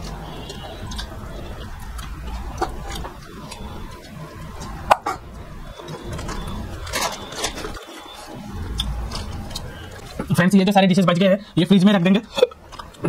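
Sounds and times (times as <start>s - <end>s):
moist chewing and lip-smacking: 0.0s - 4.9s, 12.3s - 13.0s.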